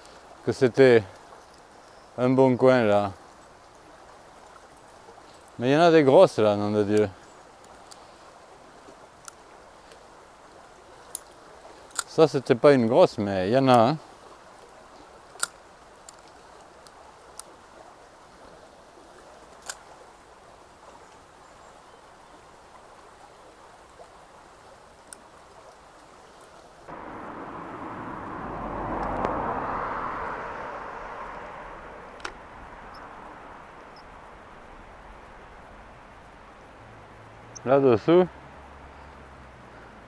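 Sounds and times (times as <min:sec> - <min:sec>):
stream running: 0:00.0 - 0:40.0
car passing: 0:26.9 - 0:35.6, 0:38.2 - 0:40.0.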